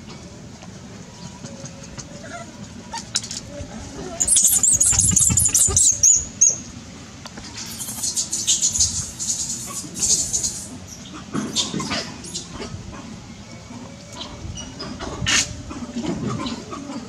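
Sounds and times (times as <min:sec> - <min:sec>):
infant monkey screaming: 0:04.2 - 0:06.3.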